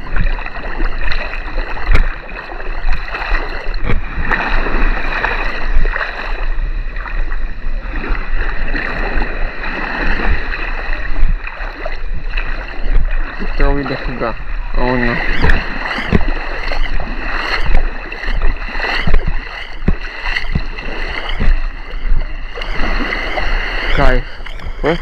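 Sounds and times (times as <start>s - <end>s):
sea water sloshing and splashing: 0.0s - 25.0s
sharp knocks: 15.3s - 16.3s, 19.0s - 20.7s.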